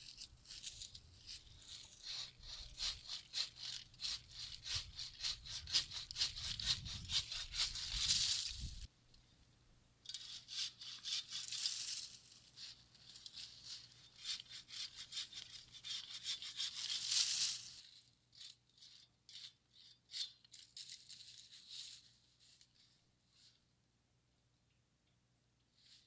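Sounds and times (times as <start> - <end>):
dry leaves rattling: 0.0 - 8.9, 11.1 - 14.4, 15.3 - 19.4, 20.5 - 22.1
hand saw rasping strokes: 1.2 - 8.6, 10.2 - 11.6, 13.5 - 17.4.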